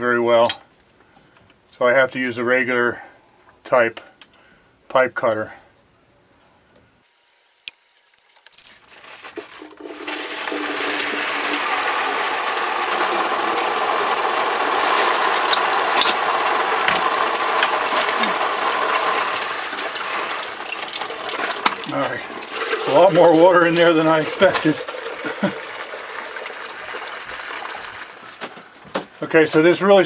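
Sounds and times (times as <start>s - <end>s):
water gushing from pipe: 9.6s - 28.4s.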